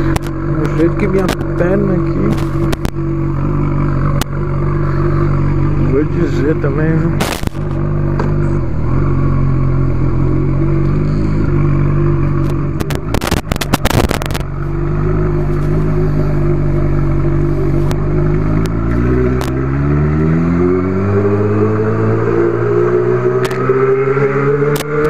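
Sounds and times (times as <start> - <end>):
motorcycle engine running: 0.0 - 25.0
clicks and clatter: 2.2 - 3.0, 12.4 - 14.5.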